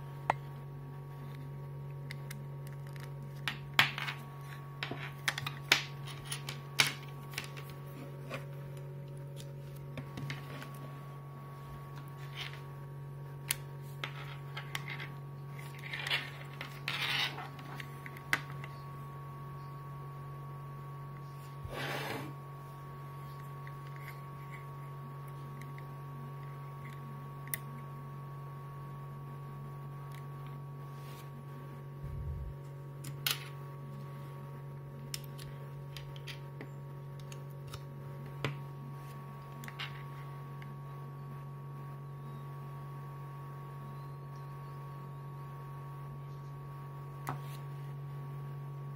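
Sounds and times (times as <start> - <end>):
steady low hum: 0.0 - 48.9
rubbing scrape: 21.6 - 22.4.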